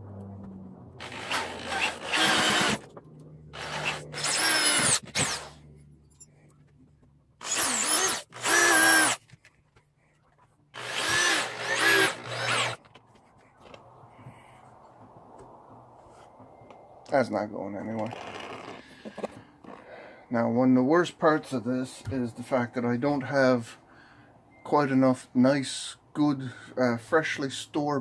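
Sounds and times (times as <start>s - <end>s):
power drill driving screws into wood: 1.0s - 2.9s, 3.5s - 5.6s, 7.4s - 9.3s, 10.8s - 12.8s.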